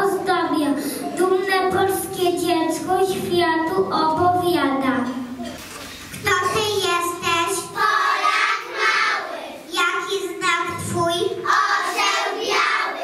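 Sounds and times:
young children singing: 6.5 - 10.4, 11.2 - 13.0.

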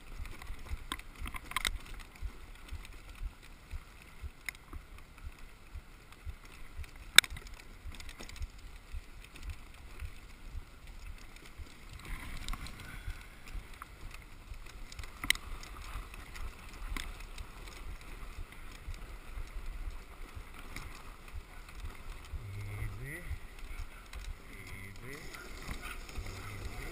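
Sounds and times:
sled runners scraping on snow: 0.0 - 26.9
low rumble: 21.3 - 26.9.

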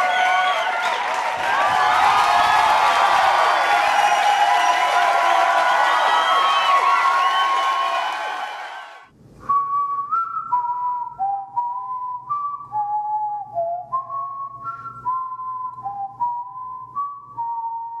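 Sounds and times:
crowd cheering: 0.0 - 9.1
person whistling a tune: 9.4 - 18.0.

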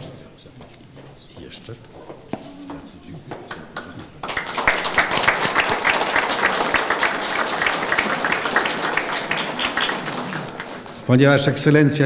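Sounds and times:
audience applauding: 3.5 - 11.6.

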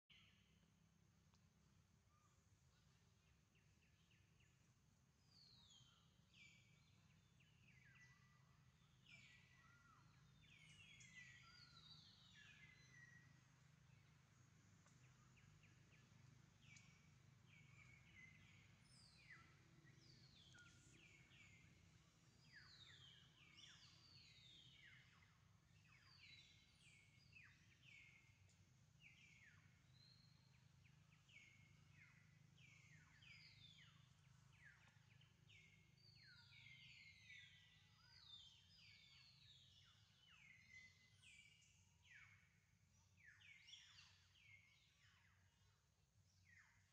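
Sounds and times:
low steady hum: 0.1 - 46.9
birds calling: 5.6 - 41.7.

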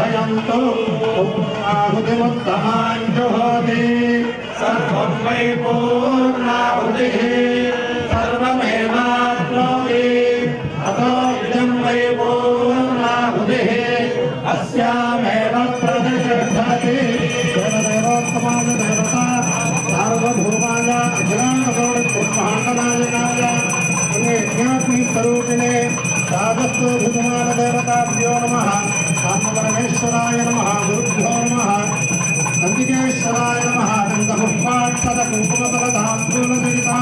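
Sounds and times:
men chanting: 0.0 - 37.0
small bell ringing: 15.7 - 37.0.

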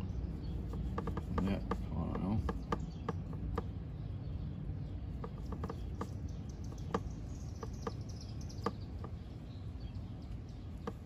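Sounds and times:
faint bird chirps: 0.0 - 11.0
palette knife tapping palette: 0.6 - 3.8, 5.2 - 9.2.

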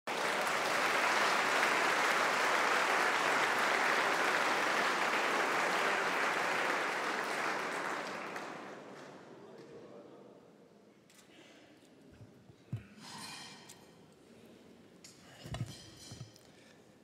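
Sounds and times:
large audience applauding: 0.1 - 9.2.

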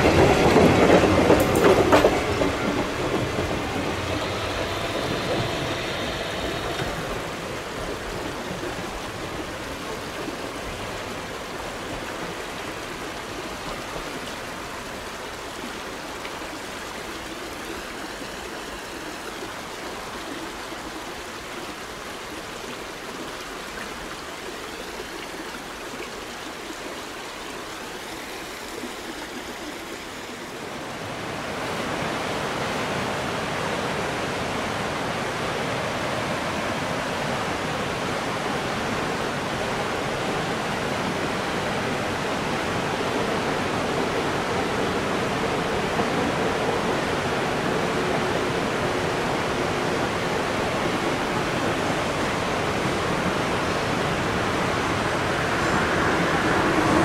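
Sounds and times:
rushing river water: 0.0 - 57.0.

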